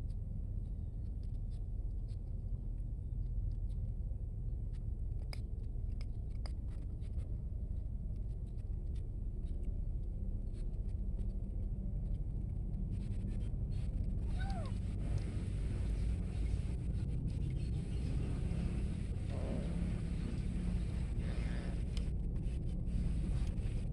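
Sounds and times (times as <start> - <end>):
low background rumble: 0.0 - 23.9.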